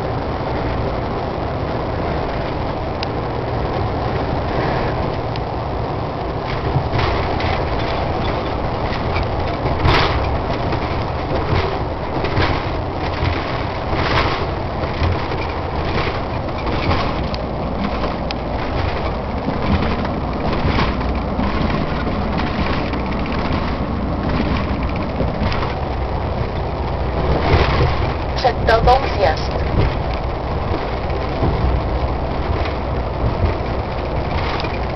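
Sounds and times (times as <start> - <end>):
lorry engine and road noise: 0.0 - 34.9.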